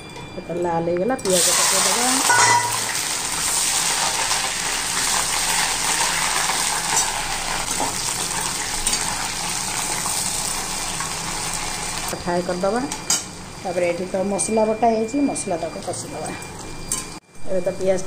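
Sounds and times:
onions sizzling in oil: 1.2s - 12.2s.

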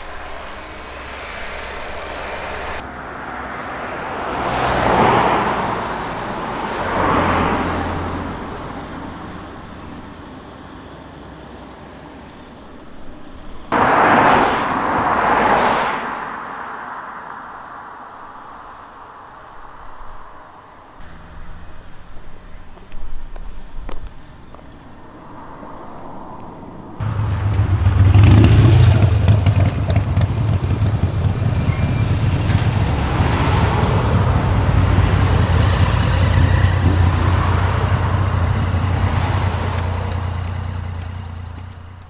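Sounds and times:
steady low rumble: 0.0s - 3.0s
cars passing: 0.0s - 42.0s.

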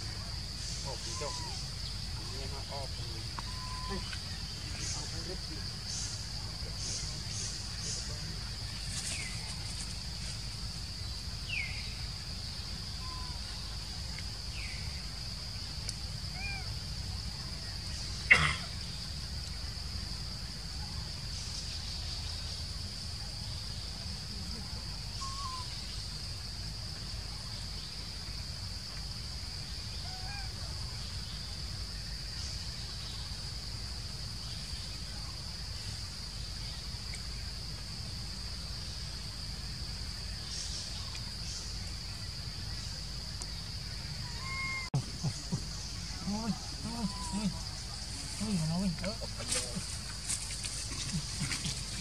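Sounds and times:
high-pitched insect drone: 0.0s - 15.1s
faint bird chirps: 0.6s - 10.0s, 11.0s - 15.0s, 23.4s - 26.2s, 42.8s - 52.0s.

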